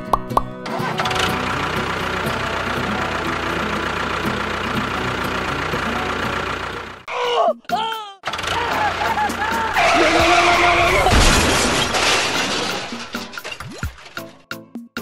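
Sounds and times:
plucked music notes: 0:00.0 - 0:06.6
engine running steadily: 0:00.6 - 0:07.1.

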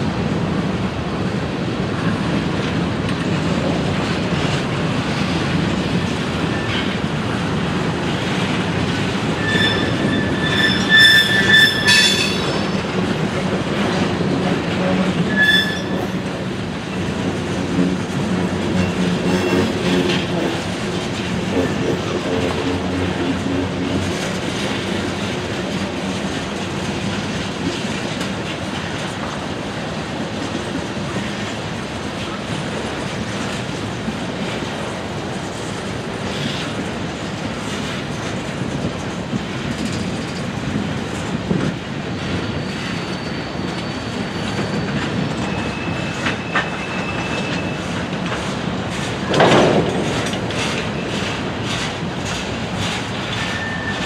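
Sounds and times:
train wheels clacking: 0:02.0 - 0:54.0
wheel squeals: 0:09.3 - 0:12.9, 0:15.2 - 0:16.2, 0:42.2 - 0:48.4, 0:53.3 - 0:54.0.

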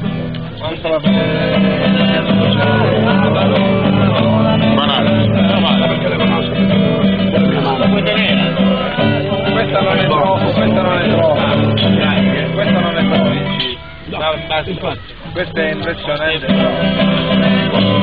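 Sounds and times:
steady bass line: 0:00.0 - 0:13.7
song with guitar and singing: 0:00.0 - 0:14.1, 0:16.4 - 0:18.0.

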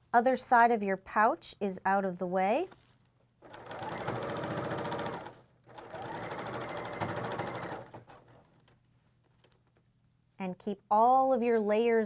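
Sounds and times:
serger machine stitching: 0:03.4 - 0:08.2.

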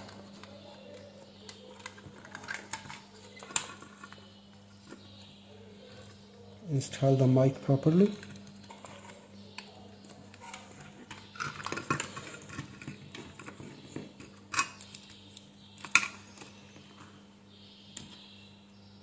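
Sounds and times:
plastic parts clicking and rattling: 0:00.0 - 0:04.3, 0:07.9 - 0:15.2.

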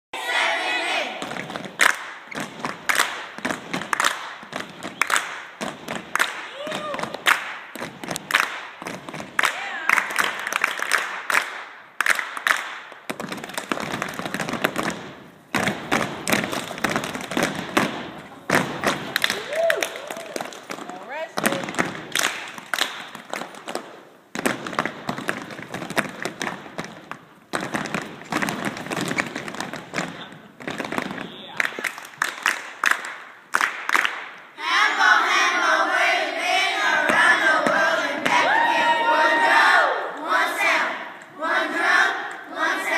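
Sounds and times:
children chanting and shouting: 0:00.2 - 0:01.2, 0:34.6 - 0:42.9
children slapping and clapping: 0:01.0 - 0:34.6.

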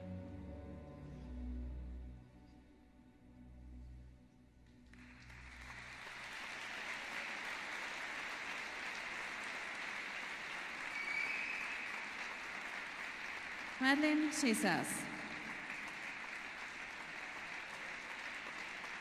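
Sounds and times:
audience applause: 0:04.9 - 0:19.0.

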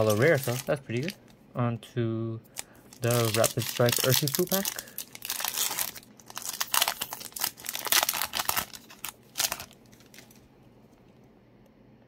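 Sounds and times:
foil wrapper tearing and crinkling: 0:00.0 - 0:01.2, 0:02.6 - 0:10.4.

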